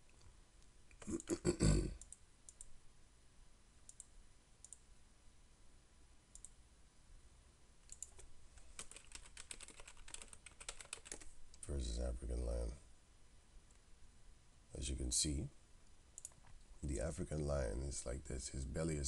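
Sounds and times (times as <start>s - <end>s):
mouse clicks: 6.3s - 6.6s, 7.9s - 8.3s
keyboard typing: 7.9s - 11.3s, 16.2s - 16.5s.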